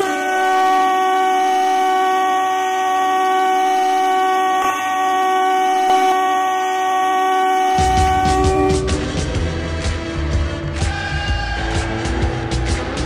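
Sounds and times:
air horn long blast: 0.0 - 9.4.

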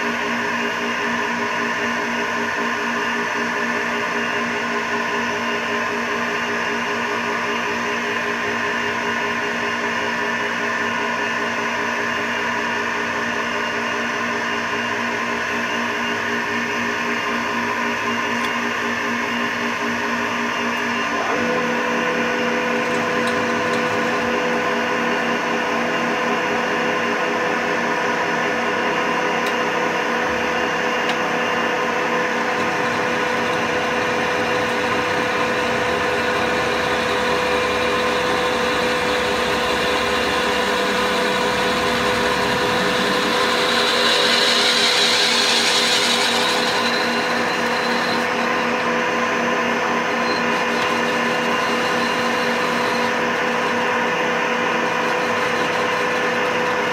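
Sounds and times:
metal lathe whining: 14.6 - 56.9
drill bit boring into metal: 22.1 - 25.4, 29.4 - 49.1, 49.8 - 56.9.

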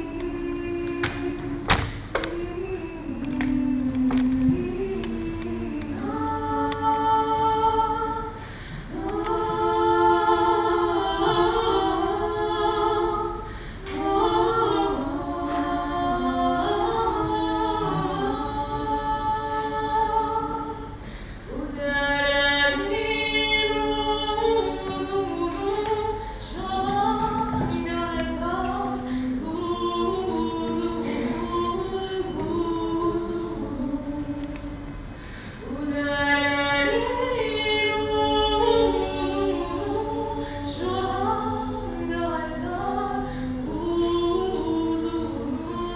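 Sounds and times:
women singing a cappella: 0.0 - 45.9
short breaths: 8.4 - 8.9, 35.1 - 35.6.

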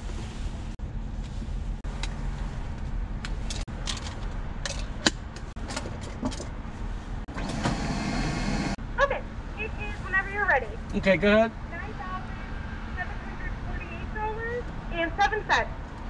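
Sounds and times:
air rushing through tube: 7.3 - 8.8.

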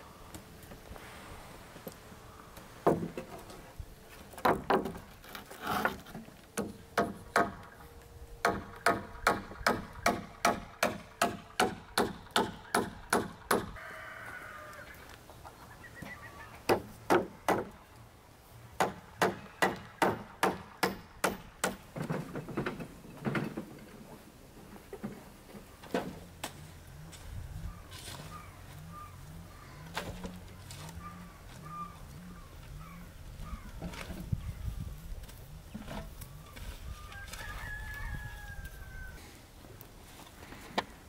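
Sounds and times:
hammer nailing wood: 6.6 - 7.8, 8.4 - 13.7, 16.7 - 17.7, 18.8 - 21.8.

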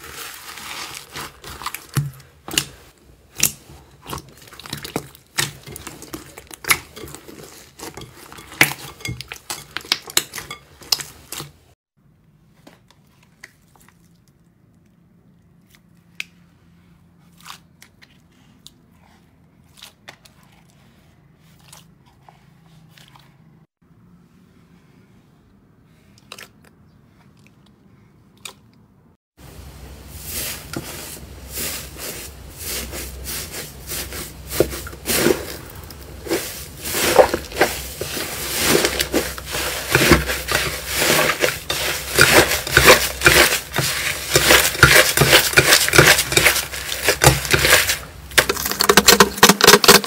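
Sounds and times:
slime crackling and squelching: 0.0 - 11.8, 30.2 - 50.0.

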